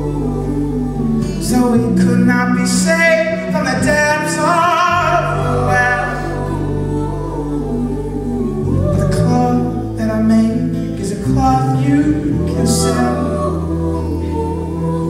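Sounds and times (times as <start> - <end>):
acoustic guitar: 0.0 - 15.0
low keyboard chords: 0.0 - 15.0
man singing: 0.0 - 15.0.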